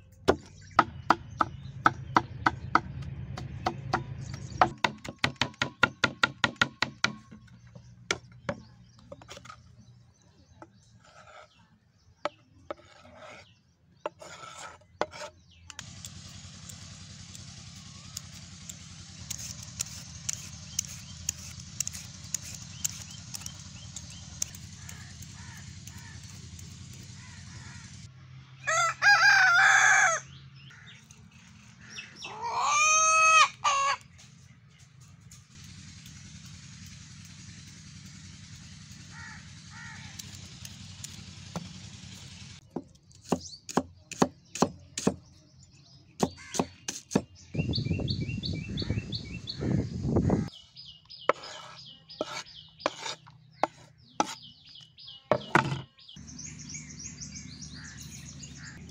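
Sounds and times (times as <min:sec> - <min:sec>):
rooster crowing: 0:28.6 - 0:30.3
sharp knocks and clicks: 0:55.3 - 0:56.0.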